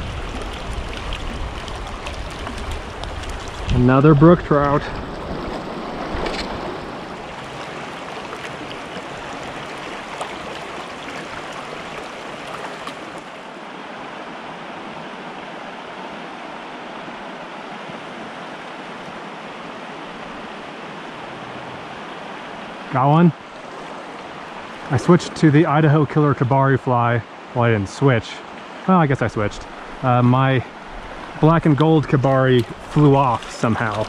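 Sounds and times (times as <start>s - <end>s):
water splash: 0.0s - 13.5s, 30.9s - 34.0s
stream rushing over rocks: 0.0s - 34.0s.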